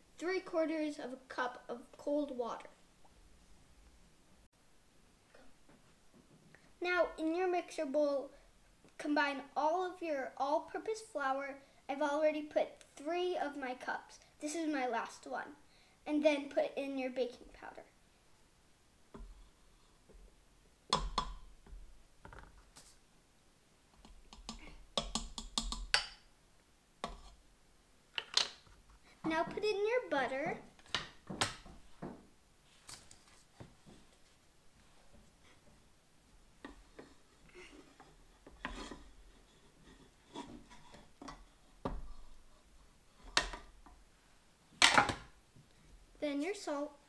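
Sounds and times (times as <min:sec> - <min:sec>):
spatula scraping cutting board: 0:37.7 - 0:41.1.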